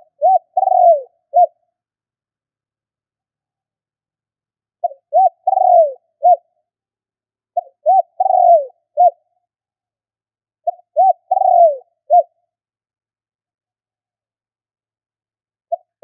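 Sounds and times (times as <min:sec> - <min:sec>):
dove cooing: 0:00.0 - 0:01.6, 0:04.8 - 0:06.5, 0:07.6 - 0:09.3, 0:10.6 - 0:12.4.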